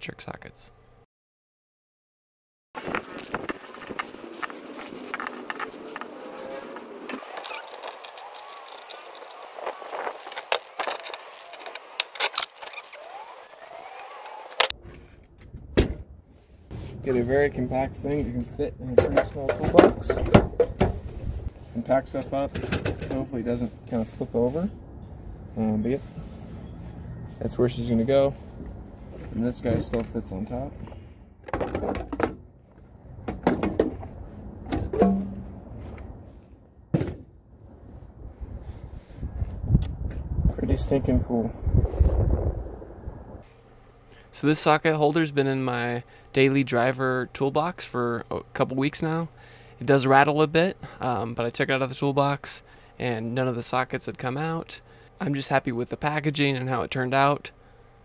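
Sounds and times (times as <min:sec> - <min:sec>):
toolbox tray clunking: 0:19.0 - 0:21.0, 0:22.5 - 0:23.2, 0:31.4 - 0:32.5, 0:33.2 - 0:34.0, 0:34.6 - 0:35.5.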